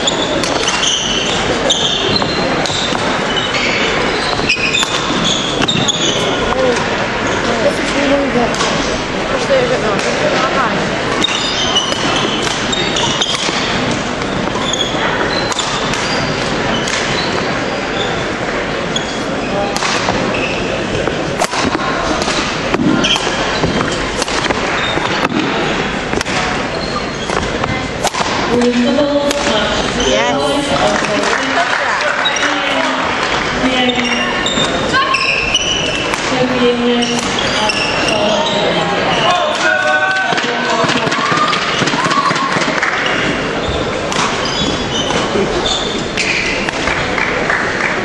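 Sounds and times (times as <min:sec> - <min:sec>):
shoes squeaking on wooden floor: 0:00.0 - 0:09.6, 0:10.3 - 0:21.2, 0:22.8 - 0:28.0, 0:28.6 - 0:31.1, 0:32.1 - 0:46.7
noise of spectators in hall: 0:00.0 - 0:48.0
racket striking shuttlecock: 0:04.3 - 0:05.9, 0:11.1 - 0:14.6, 0:15.4 - 0:17.2, 0:19.8 - 0:20.2, 0:21.0 - 0:26.6, 0:27.2 - 0:29.6, 0:46.2 - 0:47.0.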